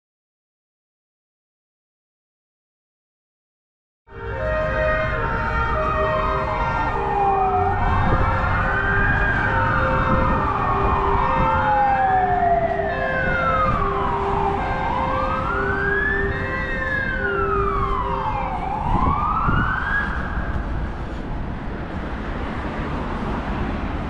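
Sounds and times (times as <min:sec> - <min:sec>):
wailing siren: 0:04.1 - 0:21.1
rumble of vehicle engines: 0:04.1 - 0:24.0.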